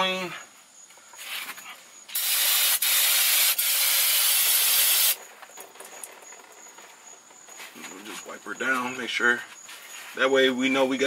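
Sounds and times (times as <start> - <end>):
aerosol can spraying hiss: 2.1 - 5.2.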